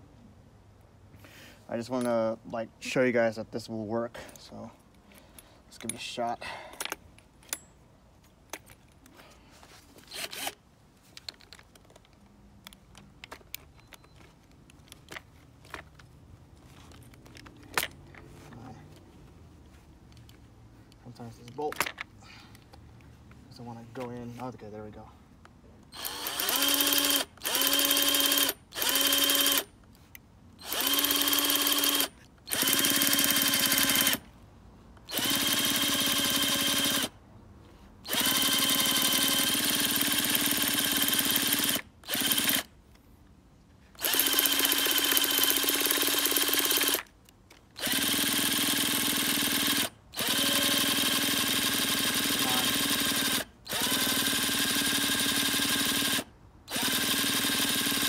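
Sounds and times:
cordless drill whine: 10.1s - 10.6s, 26.0s - 29.7s, 30.6s - 34.2s, 35.0s - 37.1s, 38.0s - 42.7s, 44.0s - 47.1s, 47.8s - 58.0s.

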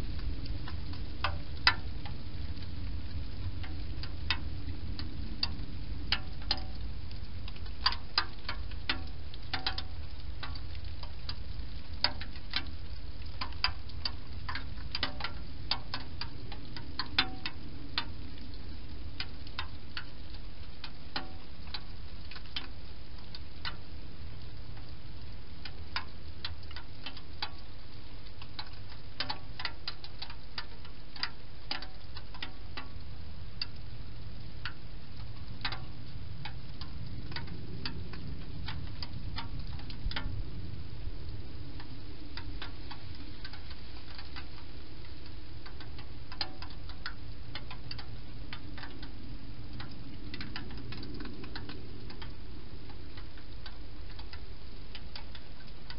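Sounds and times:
low background noise: 0.0s - 55.9s.

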